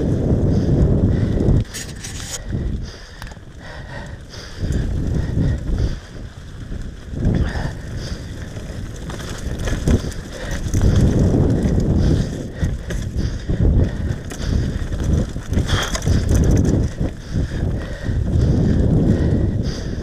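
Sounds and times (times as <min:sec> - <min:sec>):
bike tyres rumbling on dirt: 0:00.0 - 0:20.0
bike knocks and rattles: 0:06.6 - 0:18.8.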